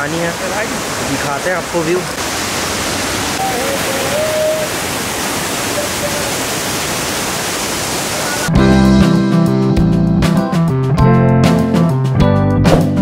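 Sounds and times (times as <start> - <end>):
waterfall rushing: 0.0 - 8.5.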